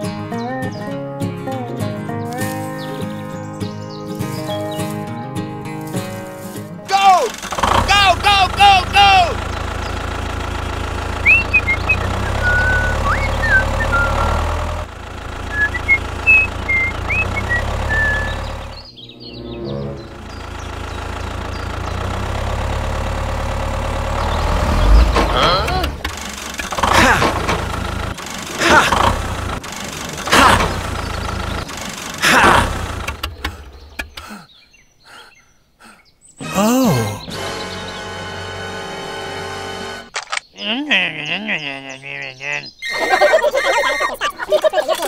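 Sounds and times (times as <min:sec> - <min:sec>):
tractor engine idling: 0:06.0 - 0:18.9, 0:20.0 - 0:34.4.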